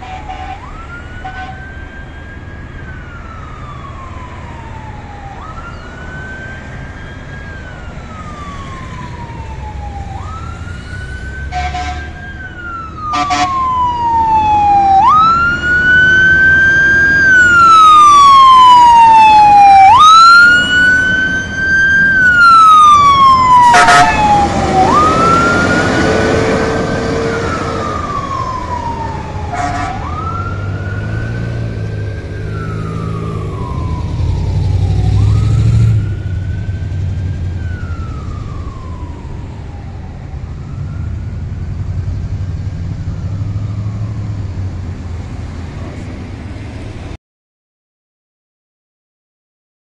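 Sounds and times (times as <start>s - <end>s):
air horn blasts: 0.0s - 1.6s, 11.4s - 12.2s, 13.1s - 13.6s, 23.6s - 24.6s, 29.5s - 30.1s
fire truck siren wailing: 0.0s - 47.2s
second siren winding up: 8.3s - 31.5s, 32.3s - 41.2s.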